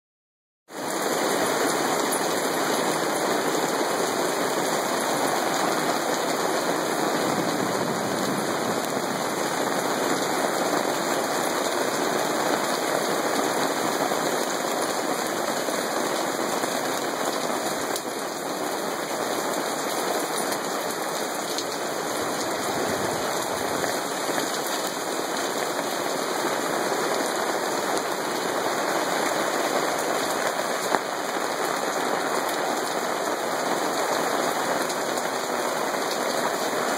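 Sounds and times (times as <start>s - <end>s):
hail hitting the ground: 0.8s - 36.9s.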